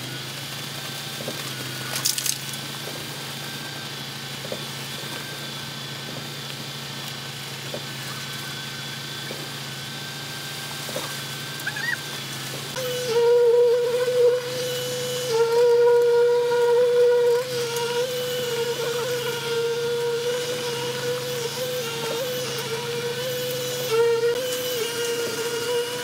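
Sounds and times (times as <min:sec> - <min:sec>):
truck engine running: 0:00.0 - 0:12.8.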